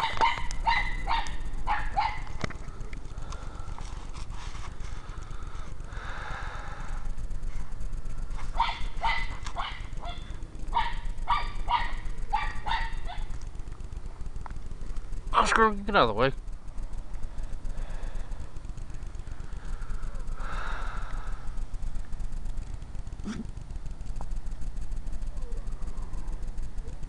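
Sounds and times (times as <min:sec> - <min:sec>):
dog barking: 0:00.0 - 0:02.3, 0:08.5 - 0:13.3.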